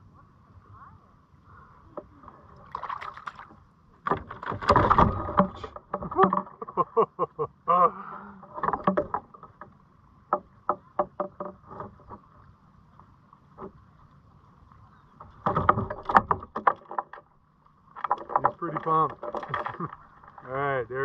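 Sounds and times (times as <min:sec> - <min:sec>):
clattering on kayak deck: 0:02.0 - 0:07.0, 0:08.4 - 0:12.5, 0:15.0 - 0:20.6
knocks and clicks of fishing gear: 0:02.8 - 0:06.9, 0:08.6 - 0:12.3, 0:15.2 - 0:17.3, 0:18.0 - 0:20.4.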